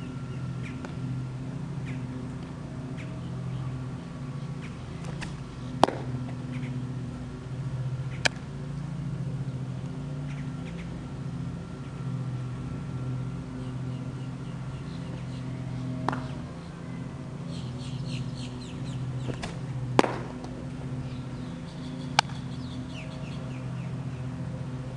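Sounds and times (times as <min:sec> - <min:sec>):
low background drone: 0:00.0 - 0:24.9
baseball smacking into a glove: 0:05.0 - 0:06.1, 0:16.0 - 0:16.3, 0:19.3 - 0:20.5.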